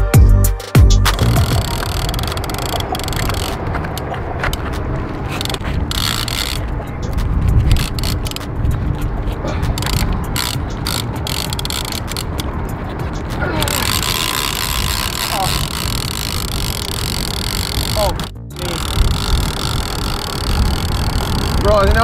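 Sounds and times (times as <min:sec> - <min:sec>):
fishing reel ratcheting clicks: 0:01.1 - 0:04.1, 0:05.3 - 0:22.0.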